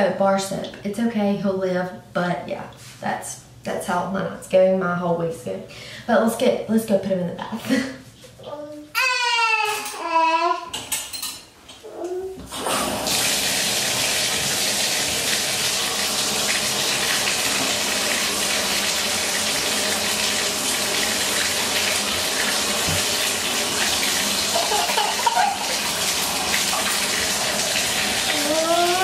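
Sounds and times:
water running into a bathtub: 12.5s - 29.0s.

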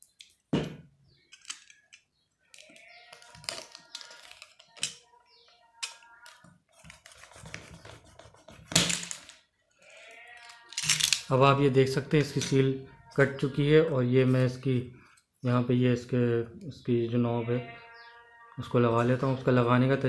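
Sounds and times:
blade scraping on plastic: 6.7s - 8.8s.

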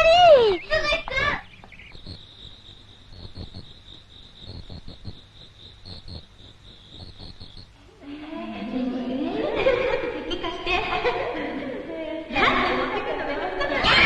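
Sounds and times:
voices: 0.0s - 2.2s, 7.9s - 14.0s
crickets chirping: 0.0s - 14.0s
people laughing: 8.3s - 14.0s.

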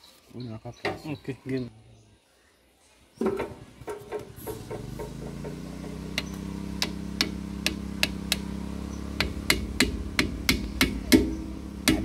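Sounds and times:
steady low hum: 3.7s - 12.0s
hammer tapping metal: 4.1s - 12.0s.

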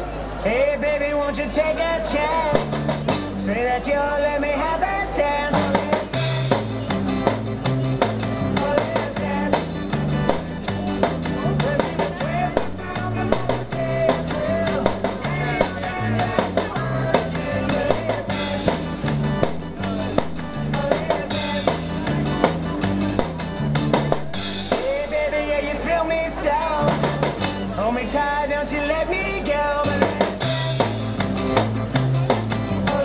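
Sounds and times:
upbeat pop song: 0.5s - 33.0s
bass line: 2.3s - 4.4s, 5.2s - 33.0s
drum kit and cymbals: 2.6s - 3.4s, 5.6s - 25.1s, 29.9s - 33.0s
guitar melody: 5.4s - 28.0s, 29.2s - 33.0s.

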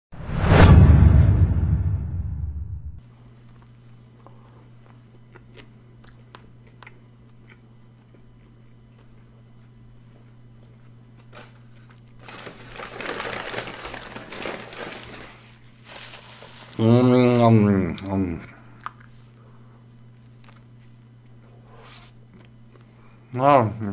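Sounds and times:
steady low hum: 0.2s - 23.9s
quiet chewing: 3.2s - 12.2s, 17.9s - 23.2s
paper wrapper crinkling: 11.2s - 16.9s.

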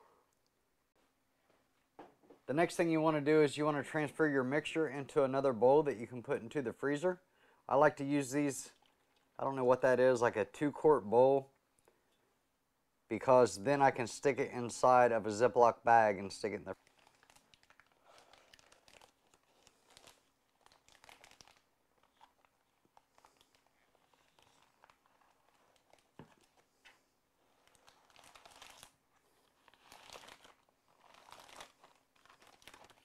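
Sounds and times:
plastic bag crinkling: 16.8s - 33.0s.

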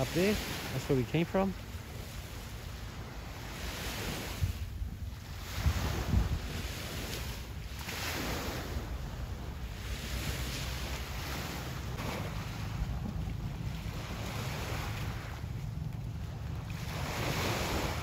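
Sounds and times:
small waves washing on shore: 0.0s - 18.0s
wind buffeting microphone: 1.9s - 18.0s.

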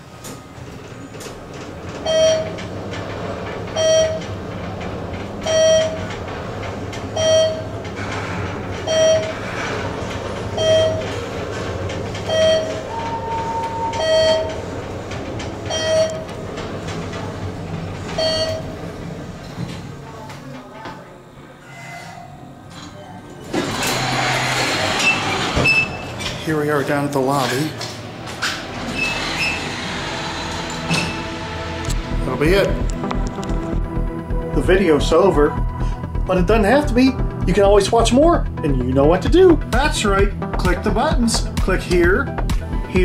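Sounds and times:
elevator low rumble: 0.0s - 43.0s.

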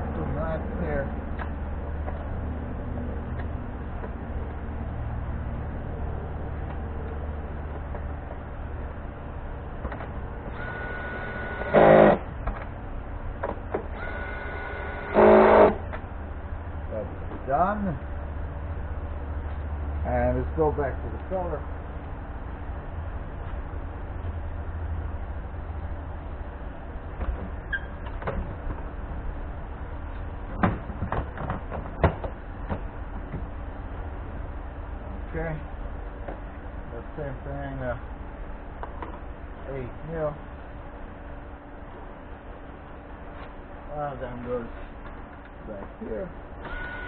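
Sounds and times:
faint high whine: 2.4s - 13.3s, 13.9s - 22.1s
cordless power tool running: 10.5s - 12.3s, 13.9s - 15.8s, 46.6s - 47.0s.

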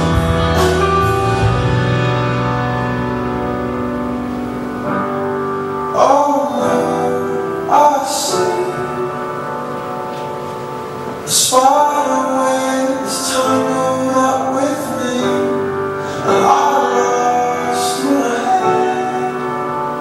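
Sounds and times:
slow song with sustained accompaniment: 0.0s - 20.0s
person singing: 5.8s - 20.0s.

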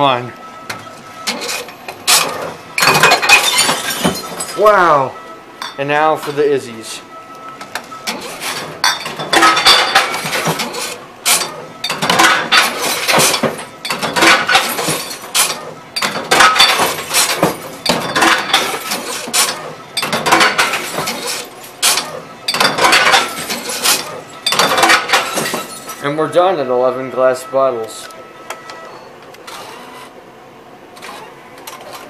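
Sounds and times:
glass bottles smashing: 1.4s - 4.8s, 8.5s - 26.1s.

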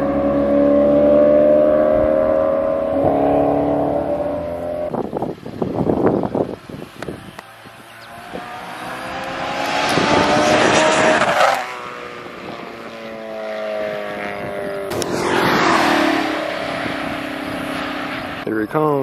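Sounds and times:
sports car passing at speed: 0.0s - 5.0s, 7.5s - 18.4s
vehicle passing: 7.5s - 18.4s.

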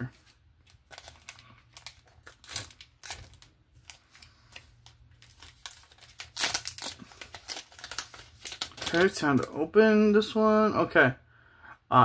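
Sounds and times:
foil wrapper tearing and crinkling: 0.1s - 9.6s.

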